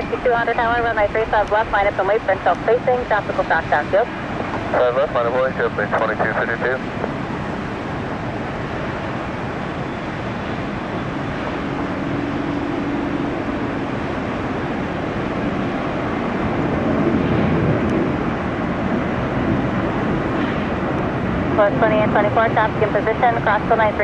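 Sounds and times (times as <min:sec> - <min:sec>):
faint steady hum: 0:00.0 - 0:16.6
airplane engine rush: 0:00.0 - 0:24.0.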